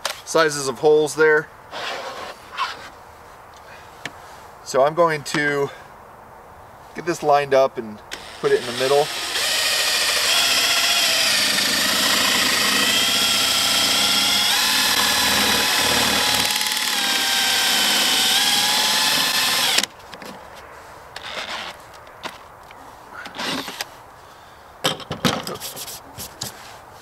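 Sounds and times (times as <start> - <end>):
cordless drill whining: 8.1 - 19.9, 23.4 - 23.8
drill bit cutting plastic: 8.1 - 19.9.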